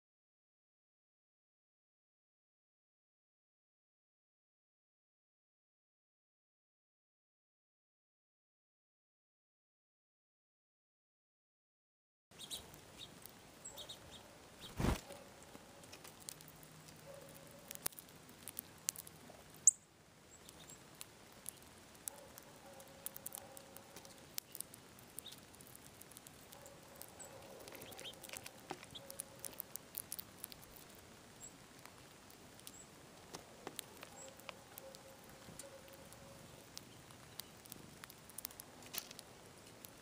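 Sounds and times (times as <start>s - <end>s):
bird pecking seeds: 12.4s - 40.0s.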